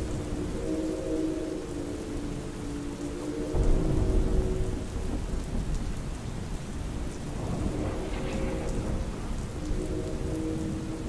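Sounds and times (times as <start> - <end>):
distant train horn: 0.0 - 5.5, 7.4 - 11.0
steady rain: 0.0 - 11.0
low thunder rumble: 3.5 - 11.0.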